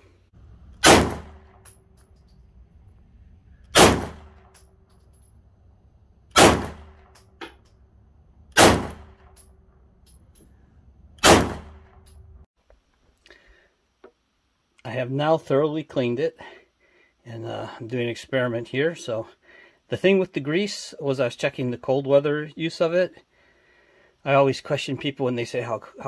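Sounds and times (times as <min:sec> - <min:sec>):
pistol shots: 0:00.7 - 0:01.8, 0:03.7 - 0:04.6, 0:06.3 - 0:07.3, 0:08.5 - 0:09.4, 0:11.2 - 0:12.0.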